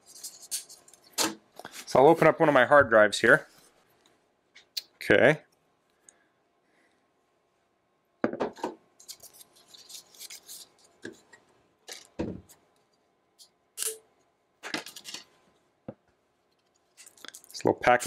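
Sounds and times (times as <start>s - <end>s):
plastic packaging crinkling: 16.9s - 17.7s.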